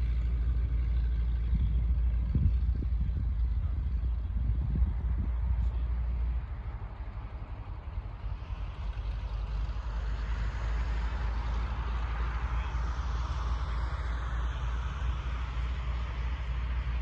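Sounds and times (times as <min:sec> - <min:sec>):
floatplane engine droning: 0:00.0 - 0:17.0
wind rumble on microphone: 0:00.0 - 0:17.0.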